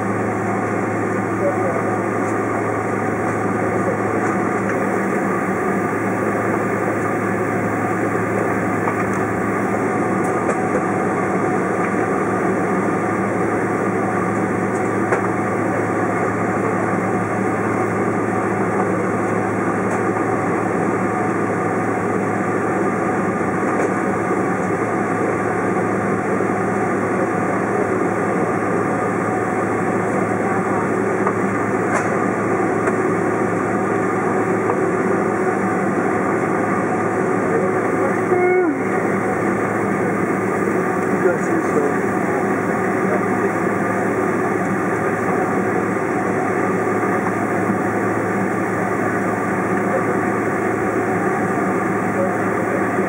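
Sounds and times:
aircraft cabin engine hum: 0.0 - 53.0.

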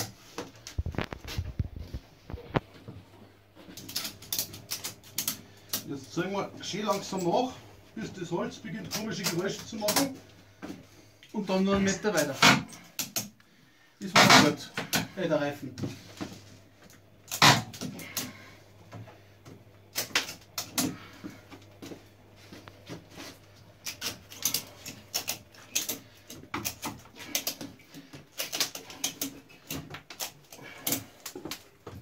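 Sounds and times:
wooden panels creaking and cracking: 0.0 - 2.7, 3.7 - 6.0, 22.9 - 32.0.

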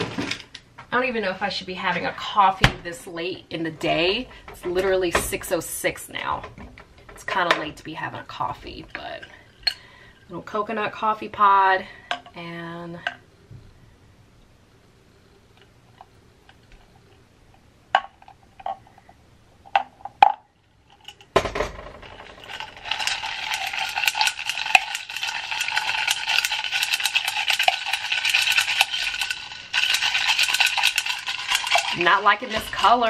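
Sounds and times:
spoon clinking glass and ice: 22.2 - 33.0.

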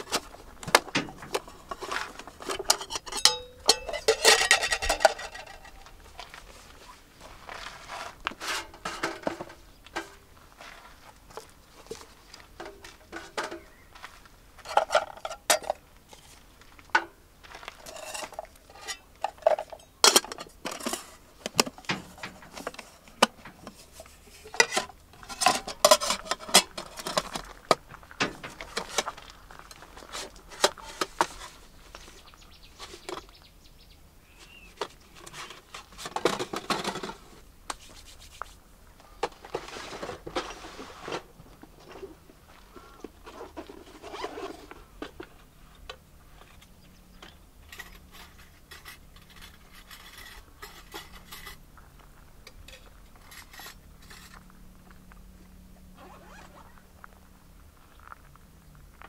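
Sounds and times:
cookware clinking and clattering: 2.4 - 5.8.

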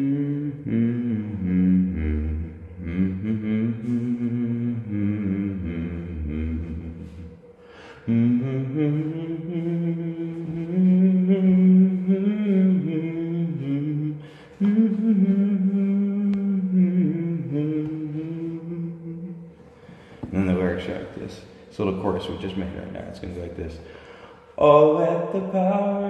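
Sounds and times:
man humming a slow melody: 0.0 - 19.9.

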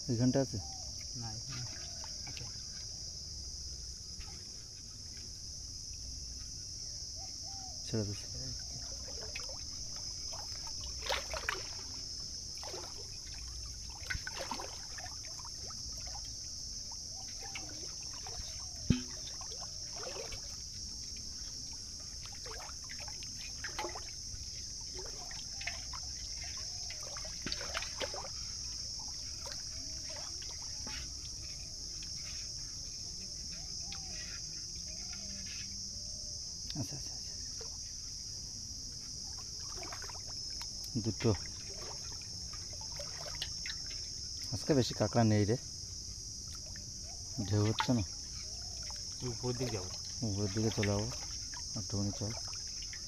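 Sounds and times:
shallow water trickling and splashing: 0.2 - 53.0
sharp knock: 18.9 - 19.2.

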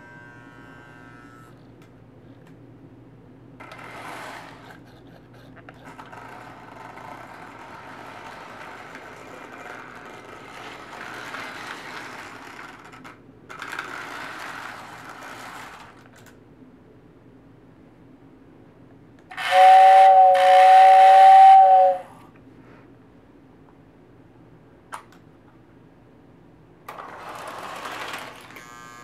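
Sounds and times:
toy train motor whirring: 0.0 - 1.6, 3.6 - 5.0, 5.8 - 16.1, 19.3 - 22.0, 26.9 - 29.0.

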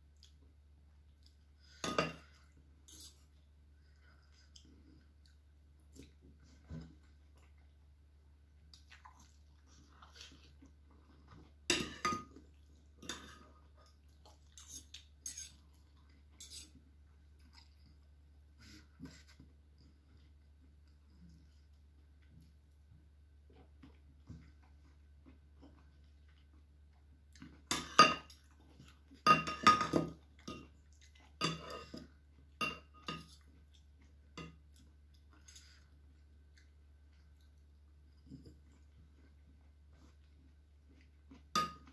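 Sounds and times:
cutlery clinking on ceramic dish: 1.8 - 3.2, 11.7 - 12.4, 27.7 - 28.4, 29.2 - 30.7, 31.4 - 32.0, 32.6 - 33.4, 41.5 - 41.9.

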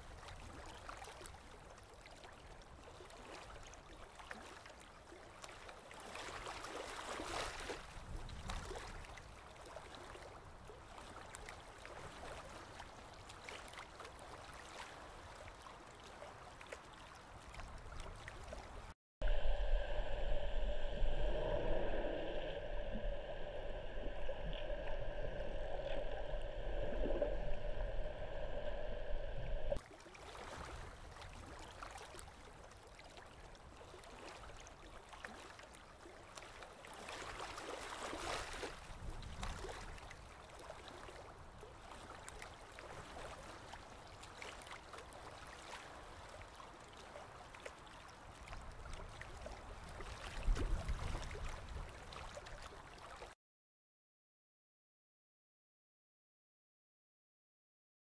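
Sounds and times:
water noise wash: 0.0 - 53.4
underwater humming drone: 19.2 - 29.8.

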